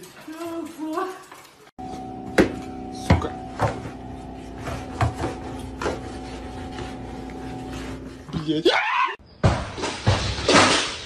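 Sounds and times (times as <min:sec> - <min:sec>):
steady hum: 0:01.8 - 0:08.4.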